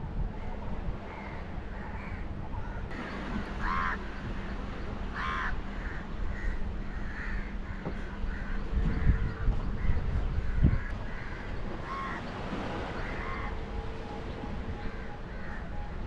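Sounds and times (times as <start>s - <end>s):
faint crows cawing: 1.1s - 4.3s, 5.1s - 13.8s, 14.7s - 16.0s
crow cawing loudly: 5.2s - 7.6s.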